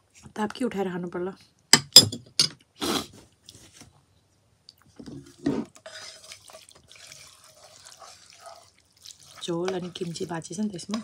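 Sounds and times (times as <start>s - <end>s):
wet chewing and slurping noodles: 4.8s - 10.5s.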